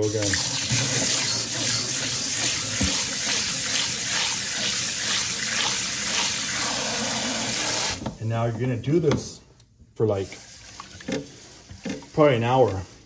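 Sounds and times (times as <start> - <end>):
sprayer water splashing into bowl: 0.0 - 8.0.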